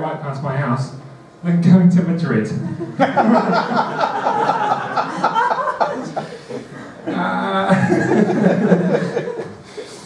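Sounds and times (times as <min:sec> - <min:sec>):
people laughing: 0:02.6 - 0:10.0.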